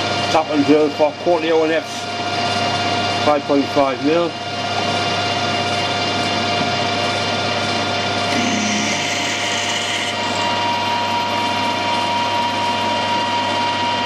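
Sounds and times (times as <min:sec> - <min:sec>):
lathe humming: 0:04.6 - 0:14.0
steady whine: 0:07.1 - 0:14.0
drill cutting hiss: 0:08.3 - 0:10.9.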